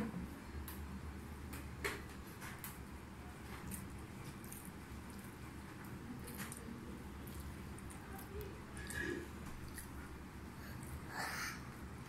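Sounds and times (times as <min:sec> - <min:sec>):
low background hum: 0:00.0 - 0:12.0
fingers squishing rice: 0:02.6 - 0:11.1.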